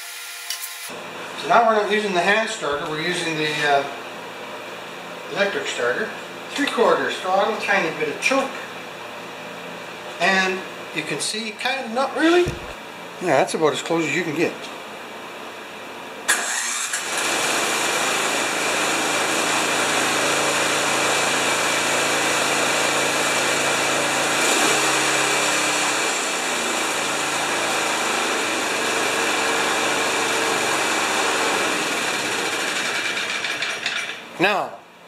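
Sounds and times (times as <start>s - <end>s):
snowblower engine running: 16.3s - 34.0s.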